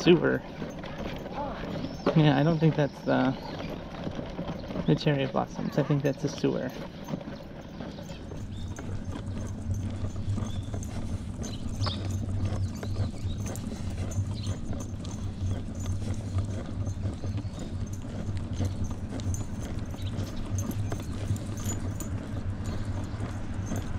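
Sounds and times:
footsteps on paved sidewalk: 0:00.0 - 0:23.9
steady low rumble: 0:08.4 - 0:23.9.

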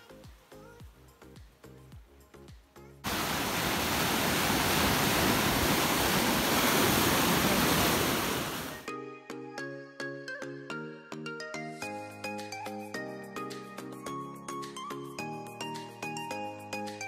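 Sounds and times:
background music: 0:00.0 - 0:03.1, 0:08.7 - 0:17.0
sea waves breaking over rocks: 0:03.1 - 0:08.9.

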